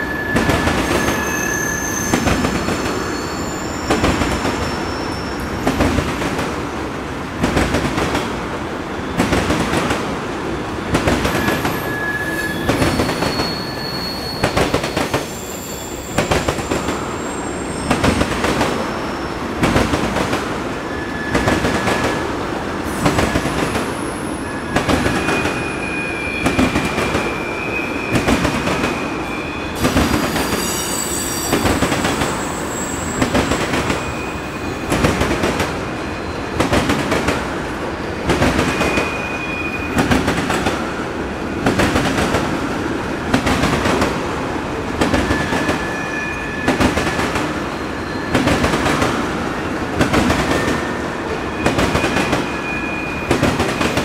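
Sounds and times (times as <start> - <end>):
high wheel squeal: 0.0 - 5.9, 11.3 - 19.6, 20.8 - 36.6, 37.9 - 41.0, 45.2 - 49.7, 50.3 - 54.0.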